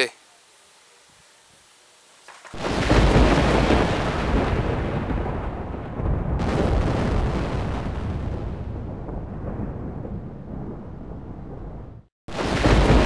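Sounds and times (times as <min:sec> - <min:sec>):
thunder clap rumbling: 0:02.5 - 0:13.0.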